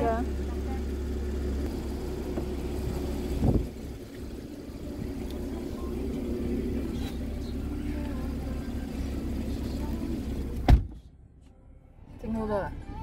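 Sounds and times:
low engine hum: 0:00.0 - 0:13.0
car door shutting: 0:01.7 - 0:03.8, 0:05.2 - 0:11.1.

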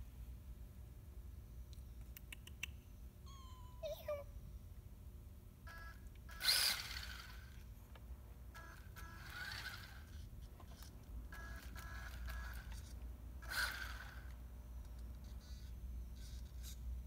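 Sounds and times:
electric motor whining: 0:06.3 - 0:07.6, 0:08.6 - 0:10.3, 0:11.4 - 0:14.4.

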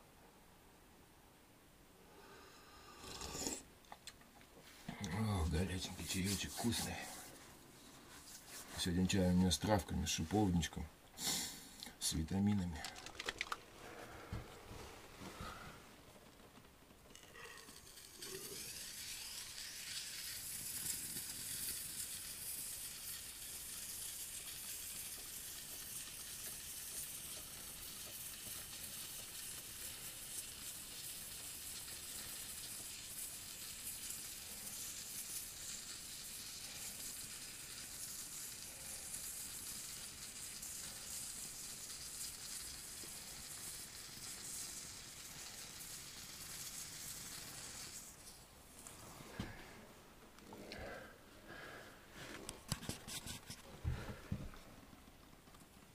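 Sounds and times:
spray foam can hissing: 0:05.4 - 0:07.4, 0:17.6 - 0:48.9.

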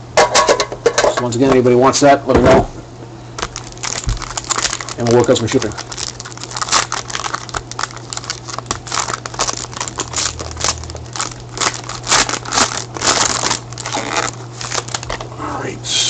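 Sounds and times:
plastic wrapping crinkling: 0:03.4 - 0:15.3.

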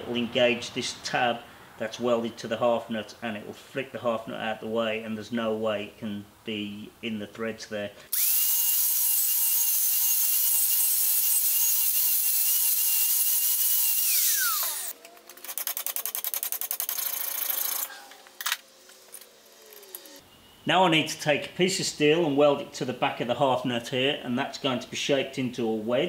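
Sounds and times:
power tool whining: 0:08.1 - 0:15.7.

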